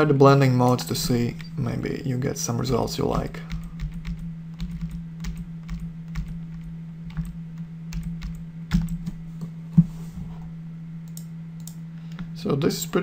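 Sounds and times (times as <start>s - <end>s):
steady low hum: 0.0s - 13.0s
keyboard keys clicking: 2.7s - 9.2s.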